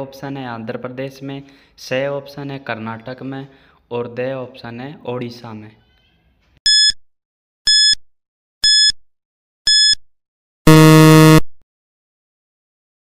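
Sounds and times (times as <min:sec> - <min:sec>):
short high beeps: 0:06.7 - 0:07.0, 0:07.7 - 0:08.0, 0:08.6 - 0:09.0, 0:09.7 - 0:10.0, 0:10.7 - 0:11.5
long low buzz: 0:10.7 - 0:11.5.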